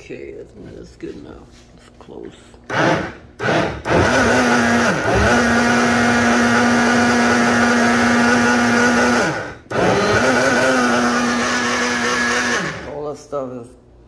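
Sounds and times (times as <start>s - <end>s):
blender motor running: 2.7s - 13.1s.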